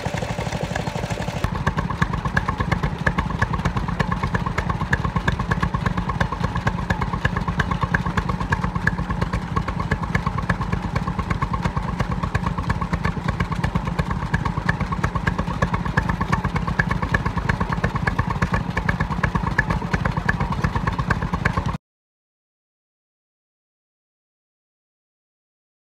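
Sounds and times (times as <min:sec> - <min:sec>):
stationary engine running: 0:00.0 - 0:21.8.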